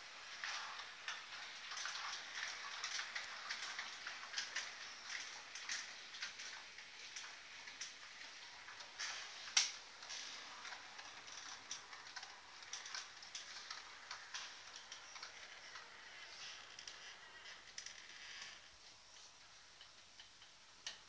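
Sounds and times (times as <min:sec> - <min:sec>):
model train wheels clicking: 0:00.0 - 0:21.0
soft hiss: 0:00.0 - 0:21.0.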